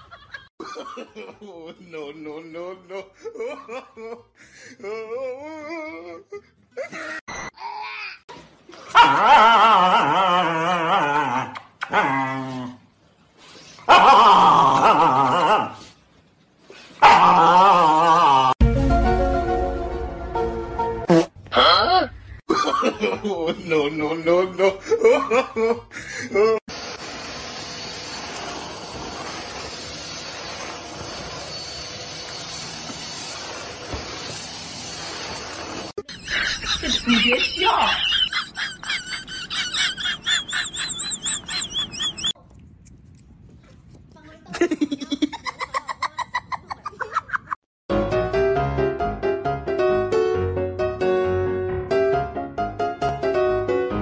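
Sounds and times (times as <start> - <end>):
vacuum cleaner running: 26.7 - 36.0.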